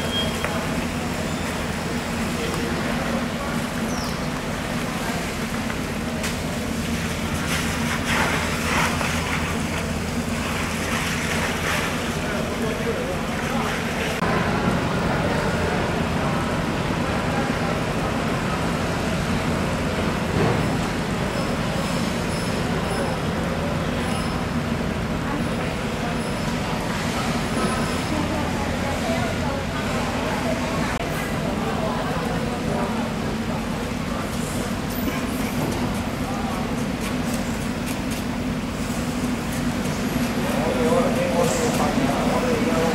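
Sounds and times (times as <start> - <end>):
rumbling market hall din: 0.0 - 42.9
hose water splashing: 0.2 - 14.2.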